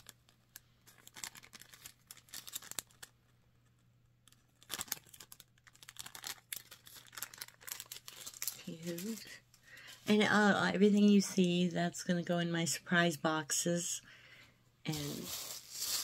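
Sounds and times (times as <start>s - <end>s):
plastic bag crinkling: 0.0s - 3.2s, 4.3s - 10.0s, 14.9s - 16.0s.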